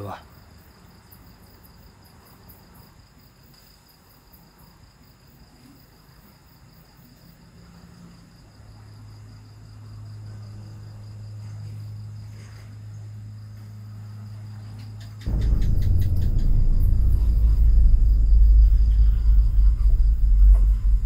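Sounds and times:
crickets chirring: 0:00.0 - 0:21.0
steady low hum: 0:15.2 - 0:21.0.

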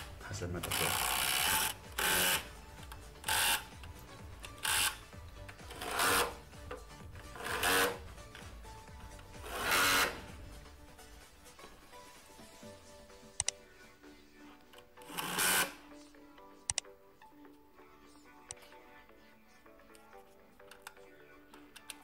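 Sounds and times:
cordless drill bursts: 0:00.7 - 0:02.5, 0:03.2 - 0:03.7, 0:04.6 - 0:05.0, 0:05.7 - 0:06.4, 0:09.5 - 0:10.3, 0:15.0 - 0:15.8.

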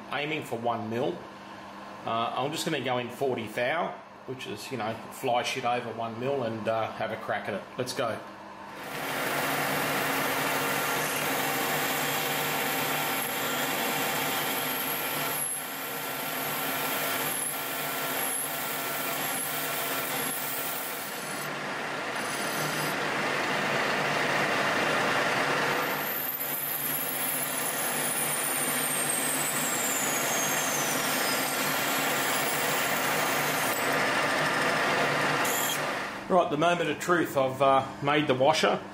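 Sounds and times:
lathe machine hum: 0:08.8 - 0:36.3
tool cutting hiss: 0:08.9 - 0:21.6, 0:25.7 - 0:35.9.

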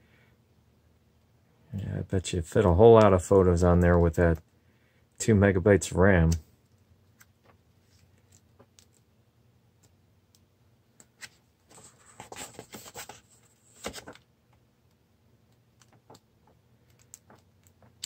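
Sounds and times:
paper pages rustling: 0:11.1 - 0:14.3, 0:15.8 - 0:18.0.

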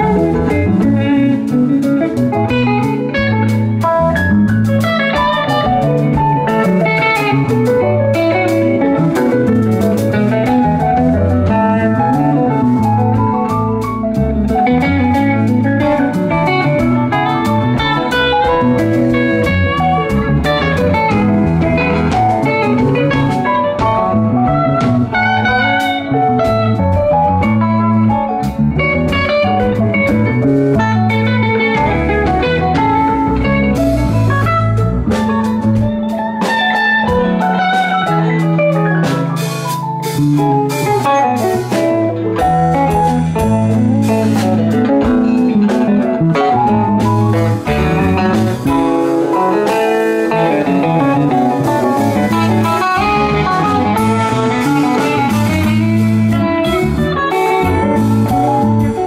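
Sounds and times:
drum kit: 0:00.0 - 0:59.0
electric bass: 0:00.0 - 0:59.0
electric guitar: 0:00.0 - 0:59.0.

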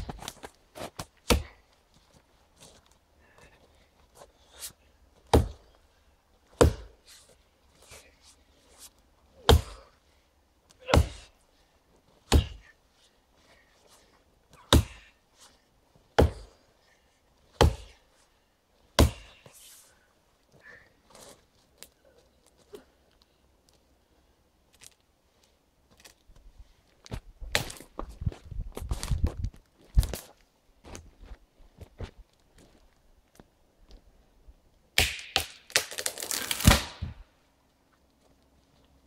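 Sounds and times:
axe chopping into tree trunk: 0:01.3 - 0:01.6, 0:05.3 - 0:05.6, 0:06.6 - 0:06.9, 0:09.4 - 0:09.8, 0:10.8 - 0:11.3, 0:12.3 - 0:12.6, 0:14.7 - 0:15.0, 0:16.2 - 0:16.5, 0:17.6 - 0:18.0, 0:19.0 - 0:19.3, 0:36.6 - 0:37.2.

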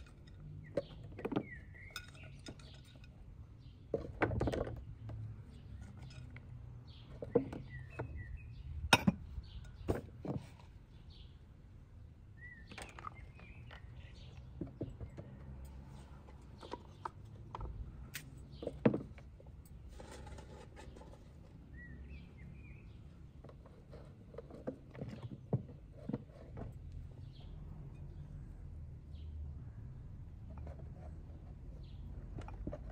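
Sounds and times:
bird chirps: 0:00.6 - 0:03.0, 0:06.9 - 0:10.0, 0:12.3 - 0:15.3, 0:21.6 - 0:23.4.

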